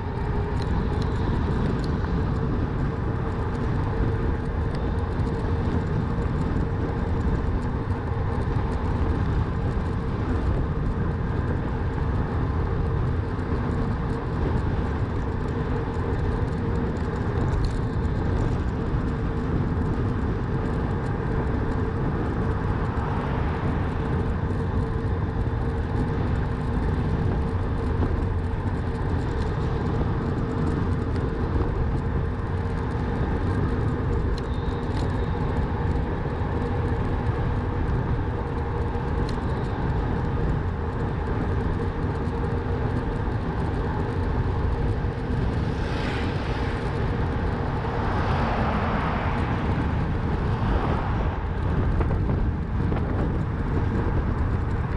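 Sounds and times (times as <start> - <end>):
bicycle riding rumble: 0.0 - 54.9
air rushing on microphone: 45.0 - 54.2.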